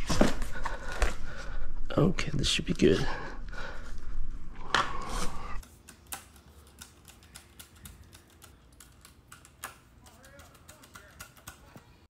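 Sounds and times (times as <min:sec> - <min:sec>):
screwdriver clicking: 0:05.6 - 0:12.0.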